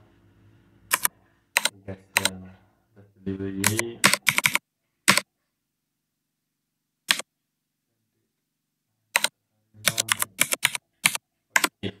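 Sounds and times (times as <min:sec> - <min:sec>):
computer keyboard keystrokes: 0:00.9 - 0:02.3, 0:03.6 - 0:05.3, 0:09.9 - 0:11.7.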